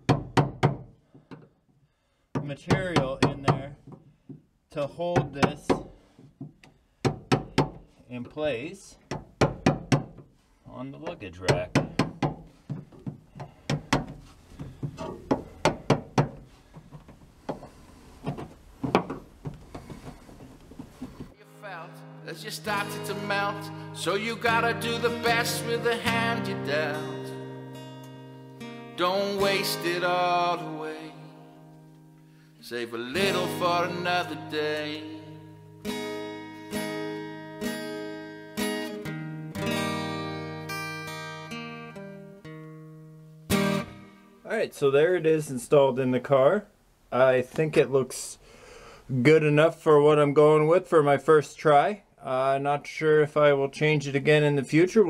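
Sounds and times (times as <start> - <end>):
sharp tapping on trim: 11.5 - 17.7
strummed guitar chords: 21.4 - 44.4.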